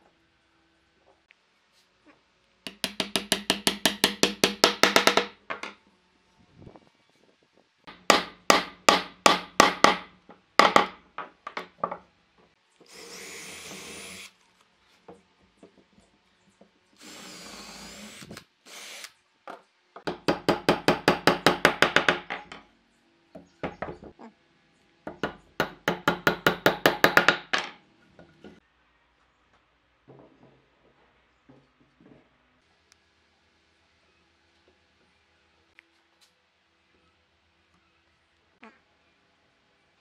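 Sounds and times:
hammer striking wood: 2.7s - 5.7s, 7.9s - 11.7s, 20.0s - 22.6s, 25.1s - 27.8s
cordless drill boring into wood: 12.9s - 14.3s, 17.0s - 19.1s.

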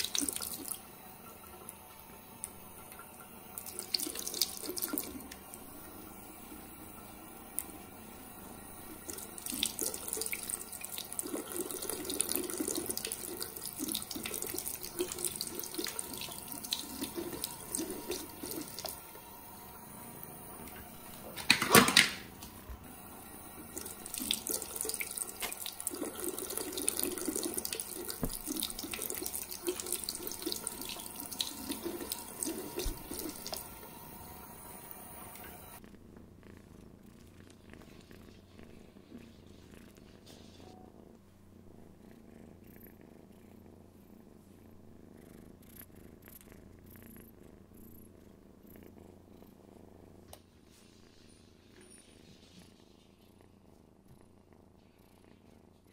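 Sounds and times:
tap water running into sink: 0.0s - 5.6s, 8.9s - 19.1s, 23.6s - 34.0s.

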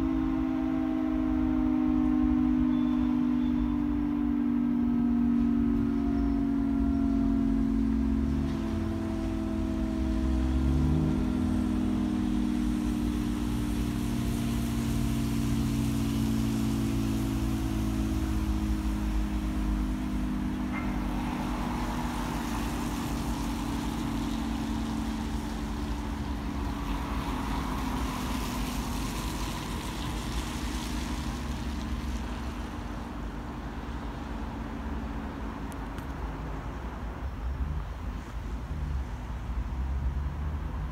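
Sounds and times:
siren sounding low chord: 0.0s - 35.2s.

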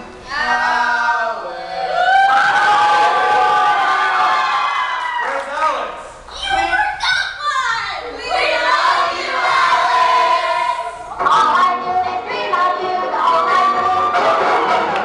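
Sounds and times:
group of voices singing: 0.2s - 2.3s, 8.2s - 15.0s
music: 11.1s - 15.0s.

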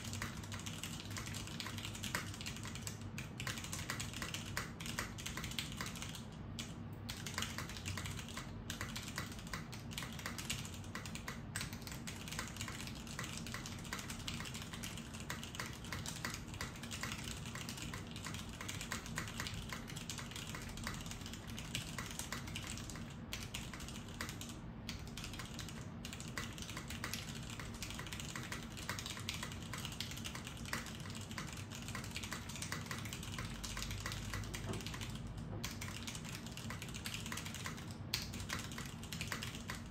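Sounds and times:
mechanical keyboard typing: 0.0s - 39.9s.

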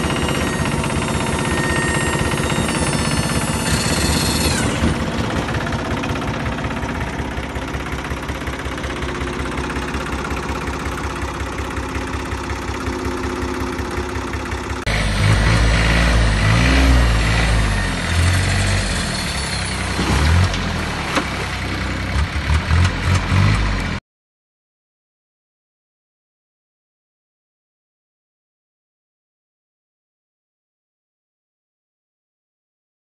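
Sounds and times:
tractor engine knocking: 0.0s - 16.7s, 17.6s - 24.0s.

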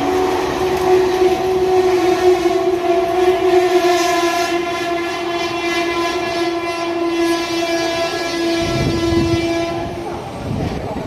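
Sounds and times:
locomotive horn long blast: 0.0s - 10.8s
train coaches rushing rumble: 0.0s - 11.0s.

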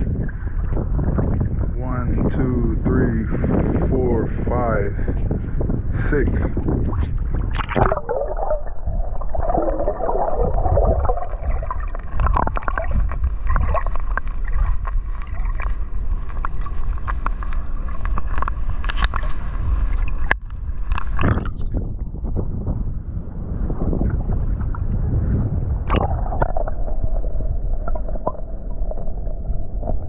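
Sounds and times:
muffled underwater rumble: 0.0s - 30.0s
water gurgling: 6.9s - 19.2s, 19.9s - 22.2s, 25.7s - 30.0s
water splash: 7.0s - 17.2s, 25.8s - 30.0s.

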